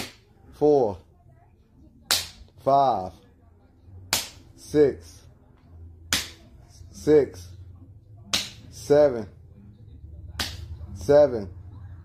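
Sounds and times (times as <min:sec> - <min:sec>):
hand slapping face: 0:00.0 - 0:00.2, 0:02.1 - 0:02.5, 0:04.1 - 0:04.5, 0:06.1 - 0:06.5, 0:08.3 - 0:08.8, 0:10.4 - 0:10.8.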